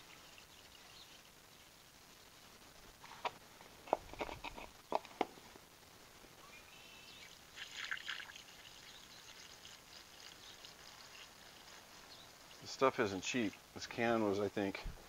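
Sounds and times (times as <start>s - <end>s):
oil trickling through funnel: 7.1s - 13.9s.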